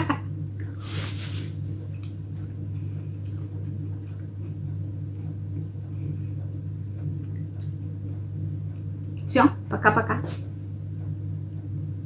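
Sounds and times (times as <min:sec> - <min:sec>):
steady low hum: 0:00.0 - 0:12.0
plastic bags rustling: 0:00.8 - 0:01.8.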